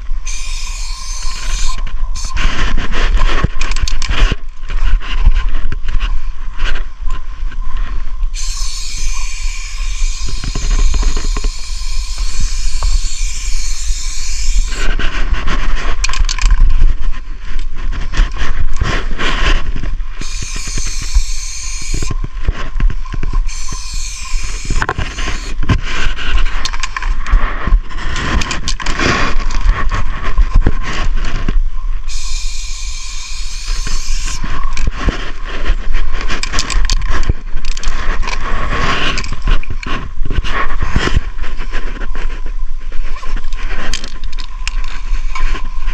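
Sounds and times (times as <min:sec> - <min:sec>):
spray paint can hissing: 0:00.2 - 0:02.4, 0:08.4 - 0:14.9, 0:20.2 - 0:22.2, 0:23.5 - 0:25.6, 0:32.1 - 0:34.4.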